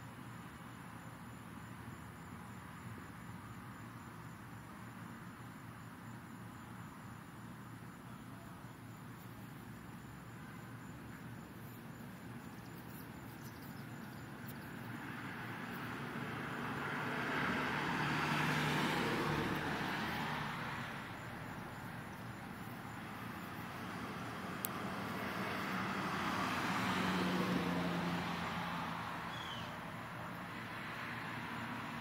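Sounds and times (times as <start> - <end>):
cars passing: 10.2 - 32.0.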